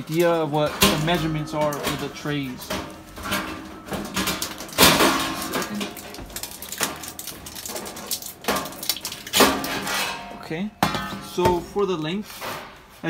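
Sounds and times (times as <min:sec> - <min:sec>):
metal pans clanking and scraping: 0:00.0 - 0:13.0
sharp metallic knocks: 0:09.4 - 0:11.7.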